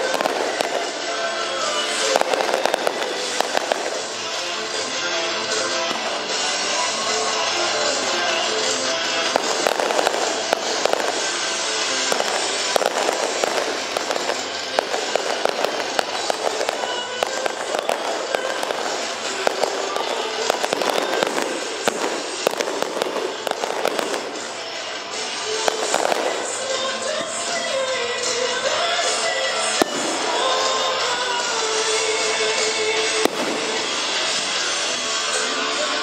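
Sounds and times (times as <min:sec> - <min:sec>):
fireworks bangs and crackles: 0:00.0 - 0:36.0
music playing: 0:00.0 - 0:36.0.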